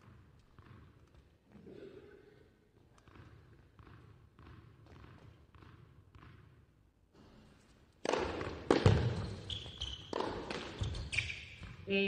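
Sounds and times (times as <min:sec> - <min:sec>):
tennis ball bouncing on court: 0:03.0 - 0:06.8, 0:08.0 - 0:11.9
racquet hitting ball: 0:08.0 - 0:11.8
shoe squeak: 0:08.8 - 0:11.8.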